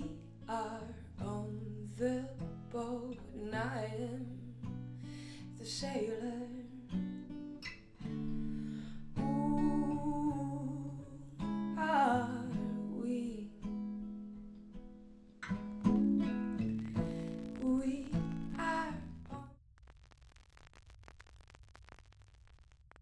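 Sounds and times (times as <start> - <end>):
woman singing: 0.0 - 4.6, 5.5 - 7.0, 9.2 - 13.7, 17.6 - 19.5
acoustic guitar strumming: 11.3 - 19.4.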